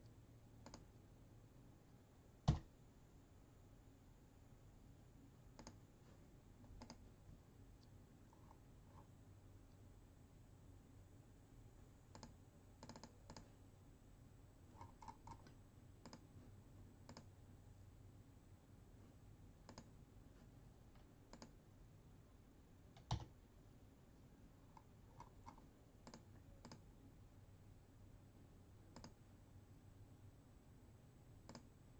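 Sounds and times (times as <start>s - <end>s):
faint clicks: 28.9s - 29.2s, 31.5s - 31.7s.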